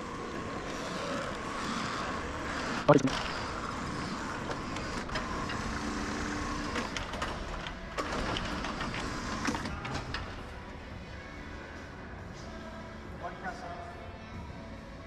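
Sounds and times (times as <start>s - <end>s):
garage door running in tracks: 0.0s - 10.5s.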